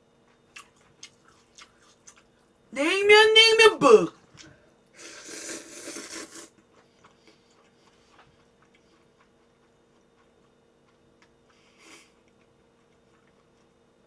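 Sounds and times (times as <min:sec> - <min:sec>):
quiet wet chewing: 0:00.1 - 0:02.6, 0:05.8 - 0:14.0
slurping noodles: 0:05.0 - 0:06.6.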